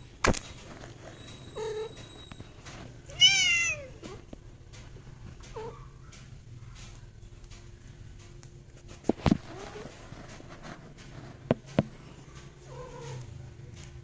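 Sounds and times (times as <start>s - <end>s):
cats mewing and crying: 0.9s - 4.3s, 5.4s - 7.0s, 12.3s - 13.4s.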